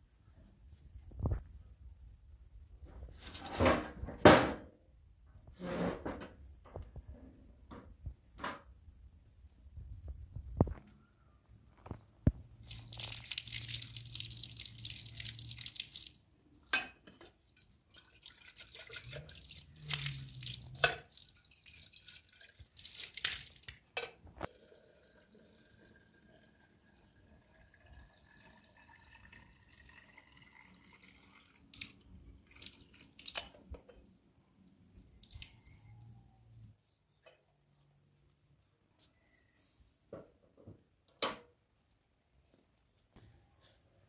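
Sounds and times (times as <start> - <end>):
water splashing onto concrete: 12.6 - 23.9, 35.1 - 35.8.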